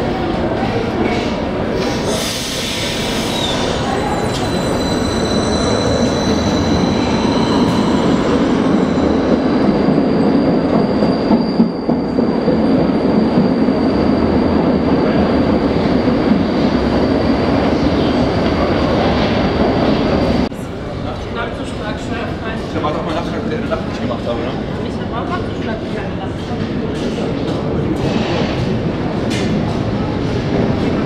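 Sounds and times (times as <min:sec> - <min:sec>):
train wheels rumbling on rails: 0:21.7 - 0:31.0.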